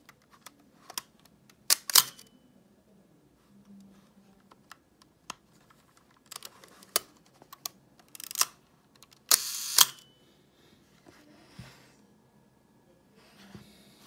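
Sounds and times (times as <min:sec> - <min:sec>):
camera shutter and mirror firing: 0:01.7 - 0:02.3, 0:09.3 - 0:10.0.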